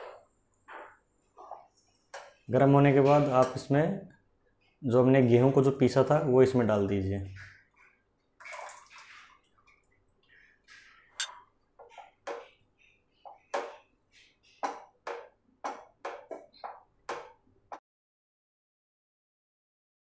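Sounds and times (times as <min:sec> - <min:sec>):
wooden spatula scraping a pan: 0:00.0 - 0:03.6.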